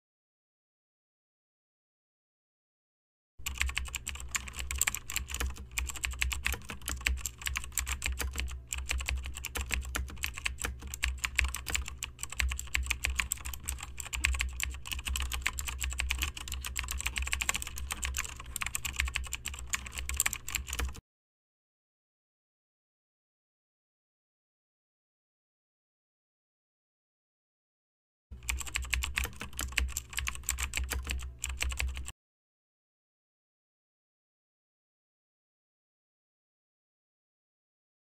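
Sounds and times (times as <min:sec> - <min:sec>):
fast typing on laptop keyboard: 0:03.4 - 0:21.0, 0:28.4 - 0:32.1
steady low hum: 0:03.4 - 0:21.0.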